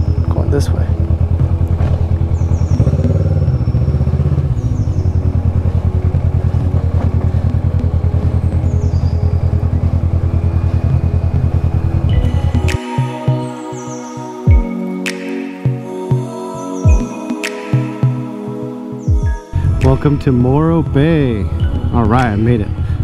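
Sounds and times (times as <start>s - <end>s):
motorcycle engine running: 0.0s - 13.7s.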